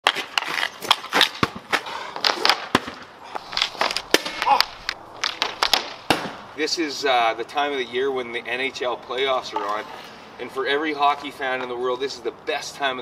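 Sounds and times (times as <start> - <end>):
hockey stick clacking: 0.0 - 6.3.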